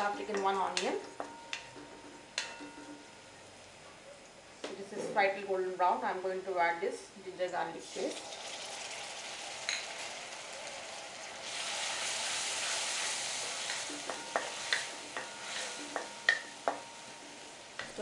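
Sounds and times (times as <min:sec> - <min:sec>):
paste sizzling in hot oil: 0:07.8 - 0:16.9
spoon knocking against pan: 0:13.7 - 0:16.9.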